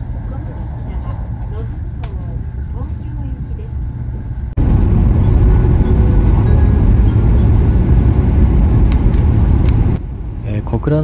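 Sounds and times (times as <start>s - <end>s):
train rumbling in a tunnel: 0.0s - 11.0s.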